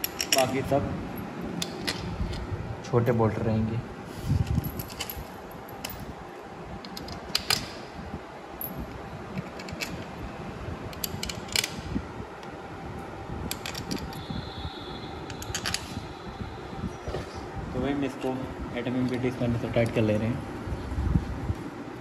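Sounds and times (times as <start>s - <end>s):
steady background hum: 0.0s - 22.0s
bolts clicking and tapping: 13.5s - 14.2s.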